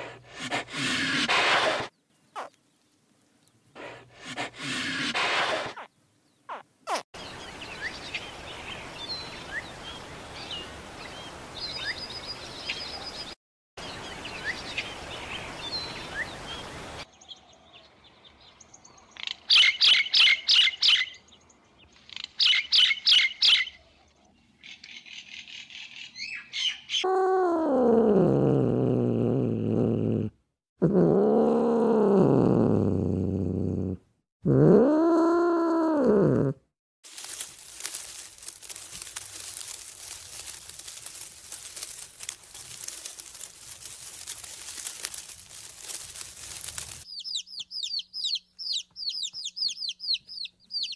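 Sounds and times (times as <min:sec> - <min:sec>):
small birds chirping: 0:01.9 - 0:04.0, 0:05.8 - 0:27.1, 0:37.2 - 0:50.9.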